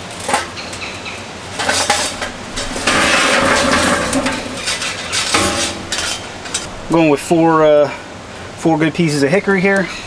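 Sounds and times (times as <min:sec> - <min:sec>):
charcoal clattering into metal basket: 0:01.5 - 0:06.7.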